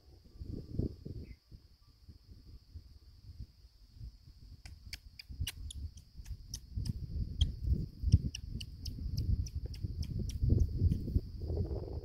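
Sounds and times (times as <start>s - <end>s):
sharp chirping clicks: 4.6s - 11.1s.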